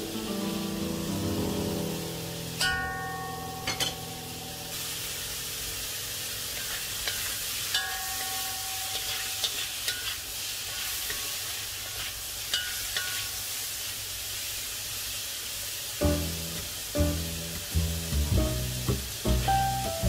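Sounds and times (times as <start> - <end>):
vegetables sizzling in a wok: 0.0 - 20.0
wok ringing: 2.6 - 11.4, 12.5 - 13.4
metal spatula scraping a wok: 6.5 - 13.4.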